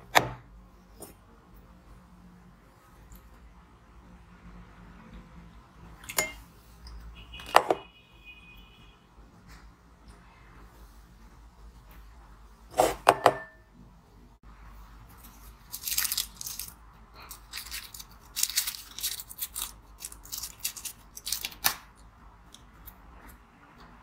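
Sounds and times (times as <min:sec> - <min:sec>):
paper crinkling and rustling: 0:15.1 - 0:21.7.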